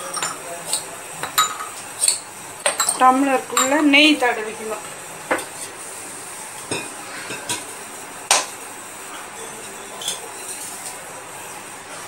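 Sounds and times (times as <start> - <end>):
metal kitchenware clinking: 0.0 - 3.9
steady hiss: 0.0 - 12.0.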